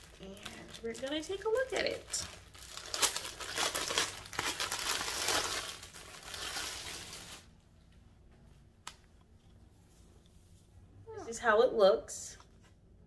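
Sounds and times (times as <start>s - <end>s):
plastic bag crinkling: 0.0s - 7.5s.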